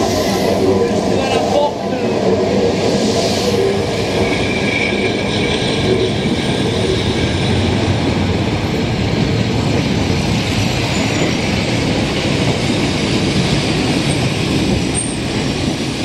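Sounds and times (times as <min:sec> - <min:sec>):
train wheels rumbling on rails: 0:00.0 - 0:16.0
high wheel squeal: 0:02.2 - 0:07.8, 0:12.5 - 0:15.4.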